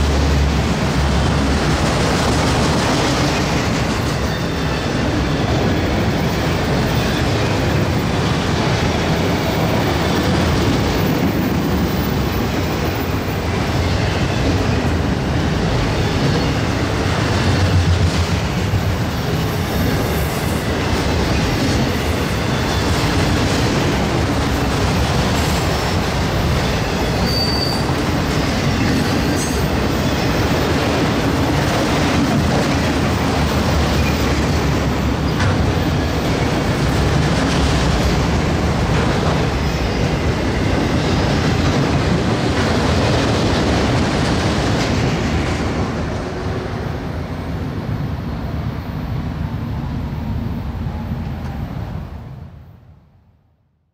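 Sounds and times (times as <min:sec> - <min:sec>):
steel wheels running on rail: 0:00.0 - 0:51.9
high wheel squeal: 0:22.2 - 0:23.2, 0:26.6 - 0:30.7.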